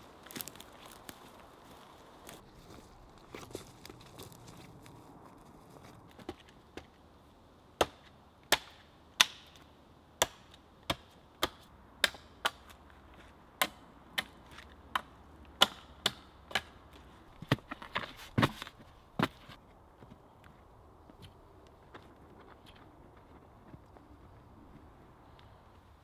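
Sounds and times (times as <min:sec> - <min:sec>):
hatchet chopping wood: 0:07.8 - 0:12.8, 0:13.6 - 0:16.8.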